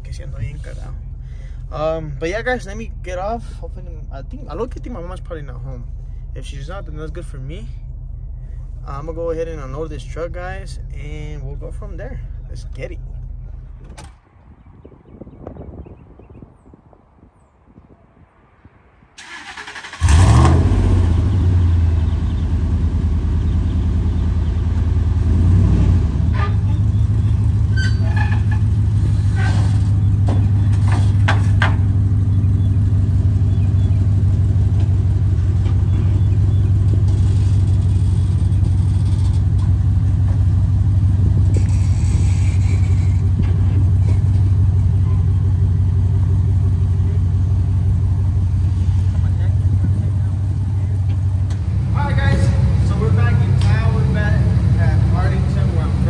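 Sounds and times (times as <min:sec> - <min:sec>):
truck engine starting and idling: 0:19.2 - 0:56.0.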